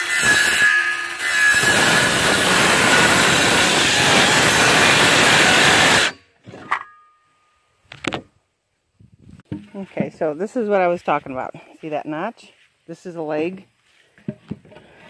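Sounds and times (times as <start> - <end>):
power saw cutting wood: 0.0 - 6.2.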